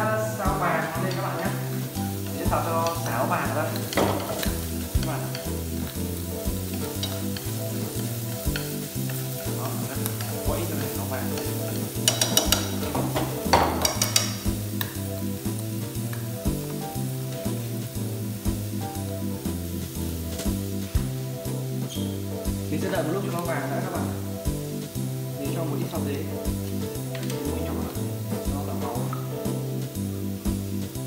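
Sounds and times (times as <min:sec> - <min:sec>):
background music with bass: 0:00.0 - 0:31.0
food sizzling in hot oil: 0:00.0 - 0:31.0
wooden spatula scraping pan: 0:00.8 - 0:15.0.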